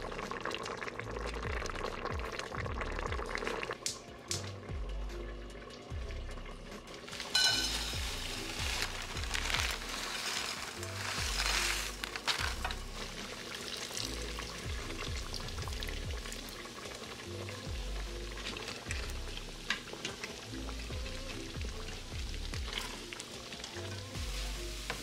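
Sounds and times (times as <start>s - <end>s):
soft background music: 0.0s - 25.0s
food sizzling in a frying pan: 6.9s - 25.0s
wooden spoon scraping a pot: 7.1s - 13.2s.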